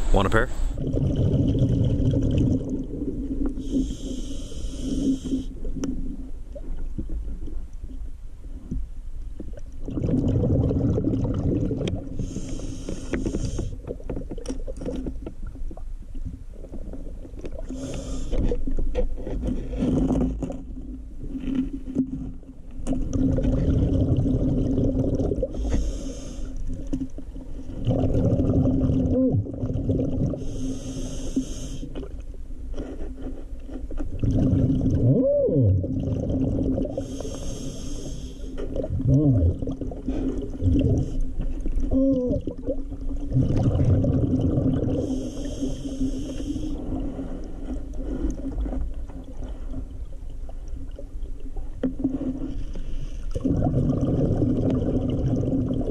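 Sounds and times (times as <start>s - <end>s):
steady low hum: 0.0s - 1.0s
exhaled bubbles rumbling: 0.0s - 4.1s, 5.2s - 26.0s, 26.6s - 30.6s, 34.0s - 37.4s, 38.6s - 52.5s, 53.3s - 55.9s
scuba regulator inhale hiss: 3.6s - 5.6s, 12.2s - 13.8s, 17.7s - 18.5s, 25.5s - 26.6s, 30.4s - 32.0s, 36.9s - 38.7s, 45.0s - 48.4s, 52.3s - 53.3s.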